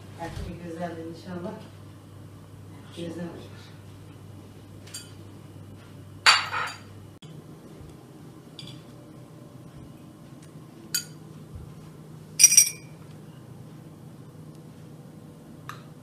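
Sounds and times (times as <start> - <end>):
tableware clattering: 6.3 - 6.9, 12.4 - 12.9
teaspoons clinking: 12.4 - 12.8
ringing clink of china: 12.4 - 12.9.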